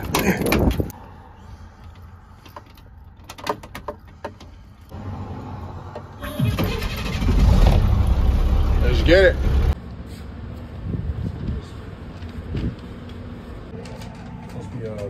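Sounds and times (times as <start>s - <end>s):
diesel engine starting and idling: 5.0s - 9.8s.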